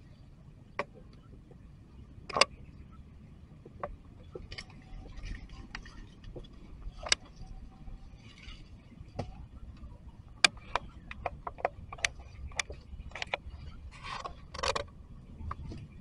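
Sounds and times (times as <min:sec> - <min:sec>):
dry leaves and twigs crackling: 0:04.2 - 0:16.0.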